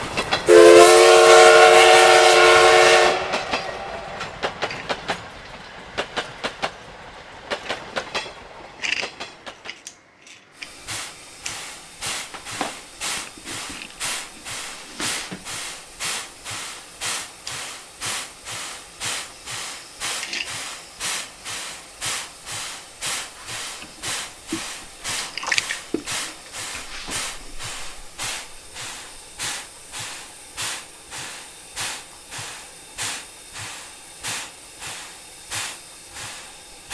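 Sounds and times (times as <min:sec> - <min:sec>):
steam locomotive chuffing: 0:00.0 - 0:36.9
toy train clicking on plastic track: 0:07.5 - 0:15.9, 0:18.5 - 0:31.3.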